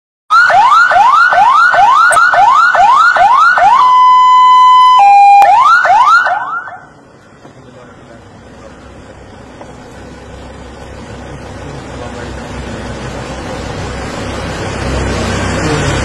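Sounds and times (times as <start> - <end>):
ambulance electronic siren: 0.3 - 7.0.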